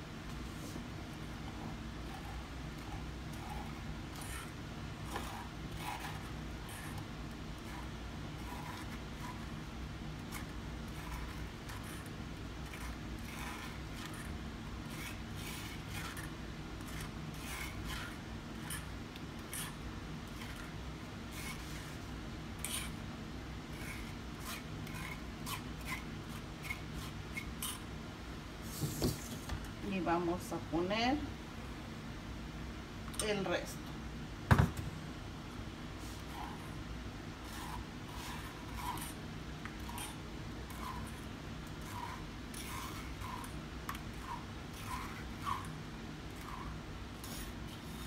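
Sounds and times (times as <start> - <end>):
spoon scraping wire-mesh strainer: 2.1 - 21.9, 37.4 - 48.0.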